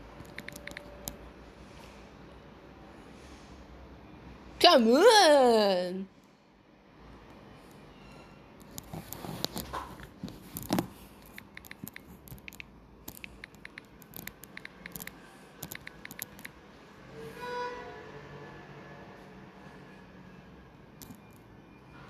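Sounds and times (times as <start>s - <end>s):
typing on touchscreen keyboard: 0.2s - 1.2s, 8.6s - 16.6s.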